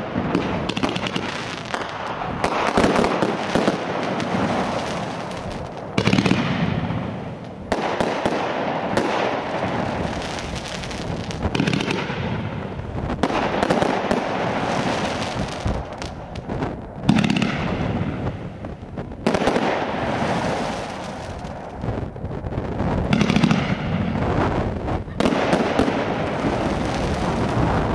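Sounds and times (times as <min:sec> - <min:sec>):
firework crackling: 0:00.0 - 0:27.9.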